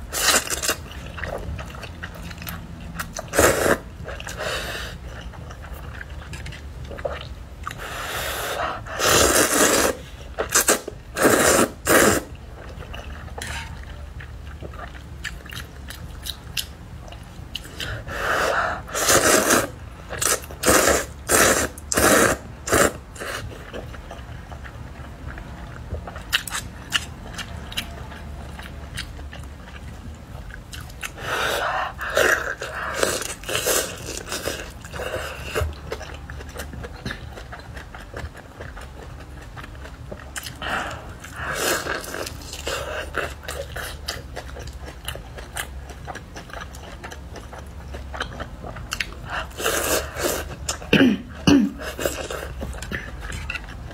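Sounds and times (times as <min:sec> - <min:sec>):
chewing and mouth sounds: 0:00.0 - 0:53.9
noodle slurping: 0:07.7 - 0:12.3, 0:18.2 - 0:23.5.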